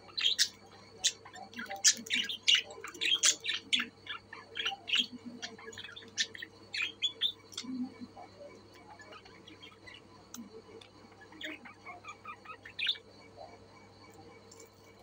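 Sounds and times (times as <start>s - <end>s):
budgerigars chirping: 0.0s - 7.8s, 11.0s - 13.1s.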